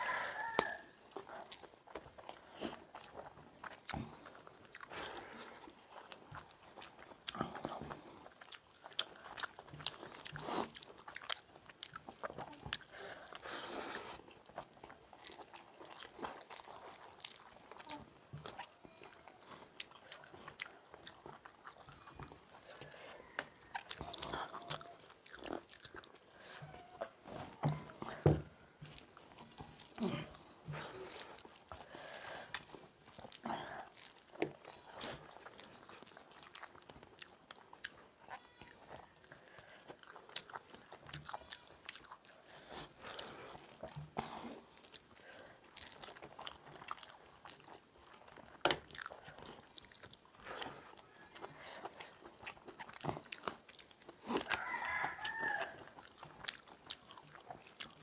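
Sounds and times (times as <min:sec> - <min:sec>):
chewing and mouth smacks: 0:00.0 - 0:58.0.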